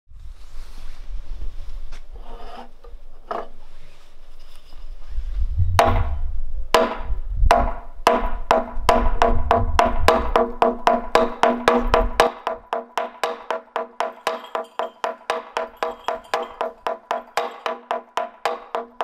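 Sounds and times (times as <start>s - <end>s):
mallet knocking wooden plank: 5.8s - 6.2s, 6.8s - 19.0s.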